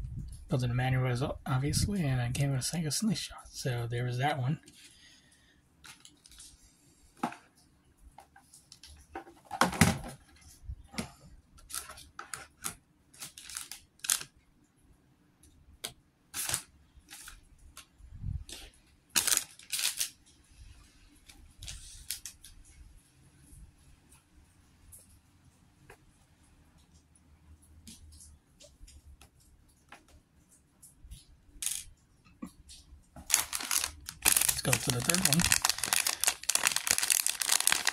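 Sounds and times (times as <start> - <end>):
plastic packaging crinkling: 5.8 - 6.5, 11.6 - 14.3, 16.4 - 17.4, 19.1 - 20.2, 33.2 - 37.9
plastic pieces clattering: 11.6 - 14.3, 19.2 - 20.2, 31.6 - 31.9, 33.2 - 37.9
small plastic pieces clicking: 11.6 - 14.3, 31.6 - 31.9, 33.2 - 37.9.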